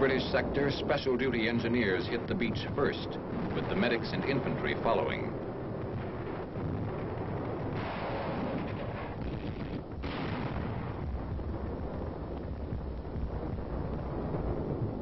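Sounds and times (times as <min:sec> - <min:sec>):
artillery explosions: 0:00.0 - 0:15.0
gunfire: 0:03.3 - 0:12.1.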